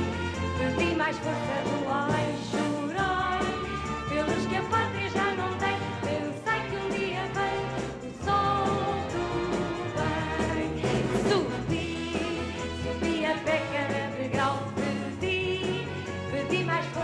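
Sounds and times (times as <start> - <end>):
orchestra playing: 0.0 - 17.0
woman singing: 0.6 - 17.0.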